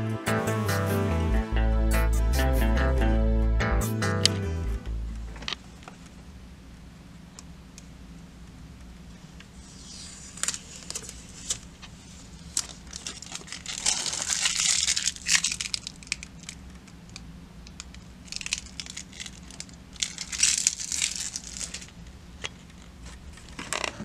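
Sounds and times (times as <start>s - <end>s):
plastic film crinkling: 9.8s - 22.0s.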